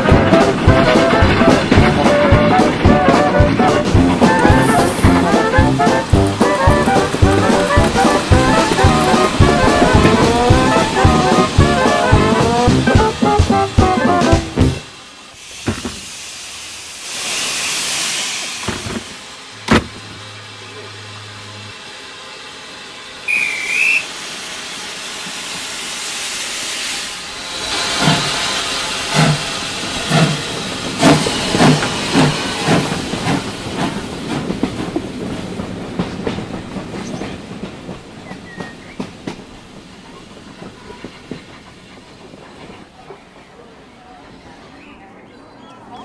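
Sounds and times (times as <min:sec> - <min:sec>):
locomotive exhaust chuffs: 0:00.0 - 0:42.2
steam locomotive hissing: 0:00.0 - 0:44.7
steam whistle toot: 0:00.2 - 0:14.8, 0:23.2 - 0:24.6.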